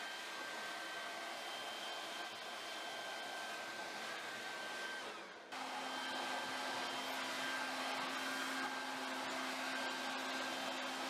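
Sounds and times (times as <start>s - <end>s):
leaf blower rushing air: 0.0s - 11.0s.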